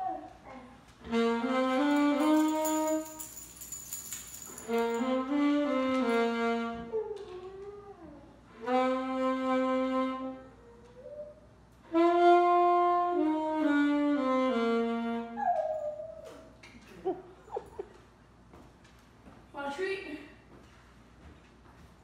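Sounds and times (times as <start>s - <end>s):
saxophone playing: 1.0s - 3.3s, 4.6s - 7.2s, 8.5s - 15.4s.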